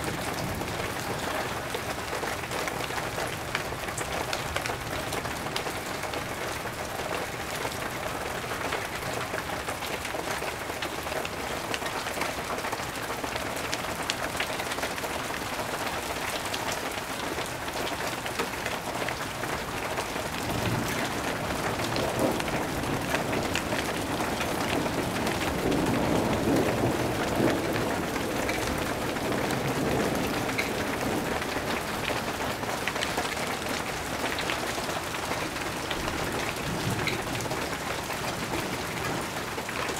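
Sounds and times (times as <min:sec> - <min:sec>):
steady rain falling: 0:00.0 - 0:39.9
low rumble of thunder: 0:20.2 - 0:39.9.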